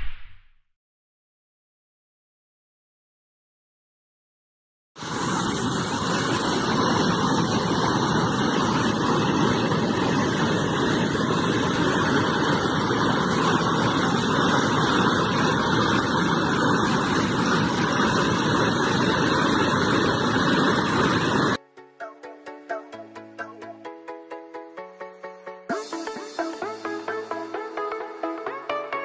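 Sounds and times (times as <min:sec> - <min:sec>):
water rushing over spillway: 0:05.0 - 0:21.6.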